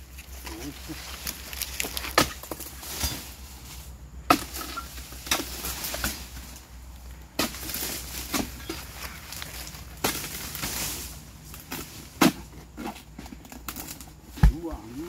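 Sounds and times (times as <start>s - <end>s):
fronds rustling crash: 0.0s - 12.5s
cutter chopping palm fronds: 0.3s - 3.4s, 4.2s - 6.6s, 7.3s - 15.0s.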